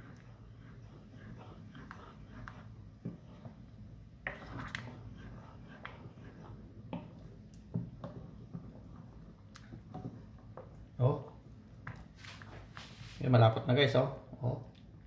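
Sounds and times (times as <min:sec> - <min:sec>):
ladle stirring thick sauce: 0:00.0 - 0:12.7
ladle knocking and scraping pot: 0:04.2 - 0:09.2.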